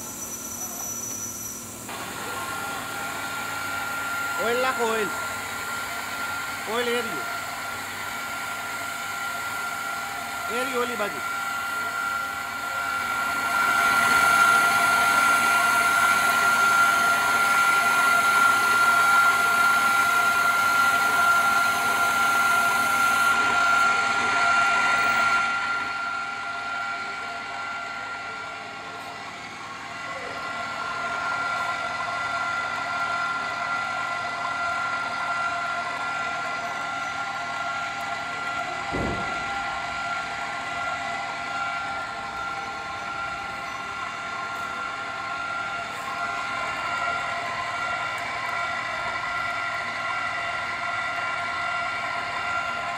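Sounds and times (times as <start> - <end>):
high hiss: 0.0 - 2.4
short thump: 38.9 - 39.4.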